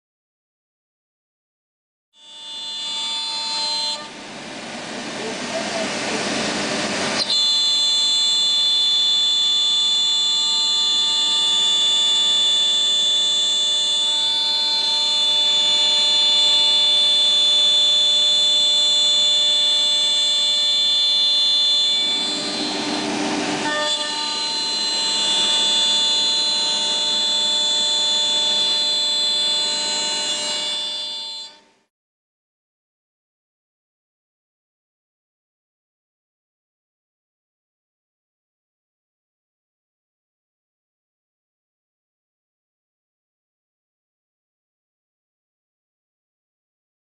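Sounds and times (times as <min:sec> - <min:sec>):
router spindle high-pitched whine: 0:02.2 - 0:31.9.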